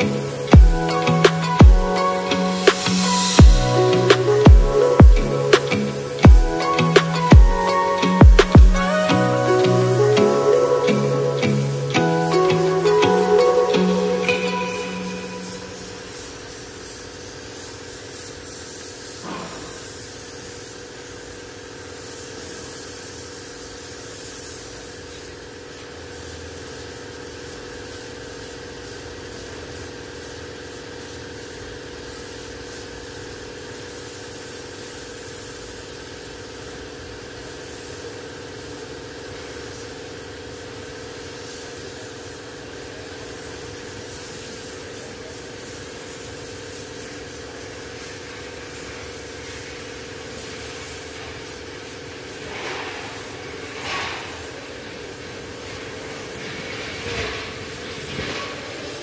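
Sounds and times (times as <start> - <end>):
steady machine hum: 0.0 - 16.8
spray gun hissing: 0.0 - 59.0.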